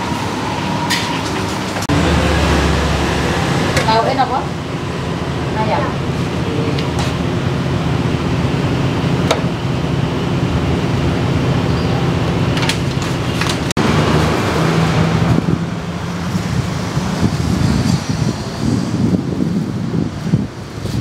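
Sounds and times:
traffic rumble: 0:00.0 - 0:21.0.

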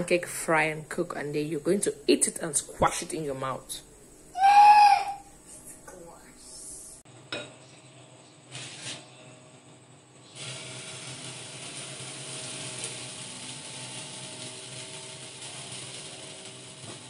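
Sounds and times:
pancake sizzling in a pan: 0:08.5 - 0:09.1, 0:10.2 - 0:17.0.

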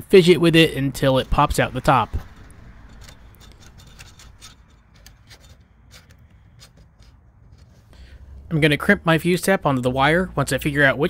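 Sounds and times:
wire clicking and rubbing in plastic: 0:02.2 - 0:07.9.

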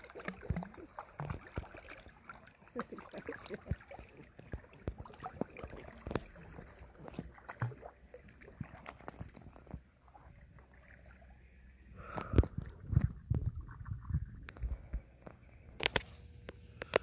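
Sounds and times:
pool water splashing: 0:00.0 - 0:12.1
muffled underwater thumps: 0:00.2 - 0:02.1, 0:03.4 - 0:10.0, 0:12.2 - 0:15.4.

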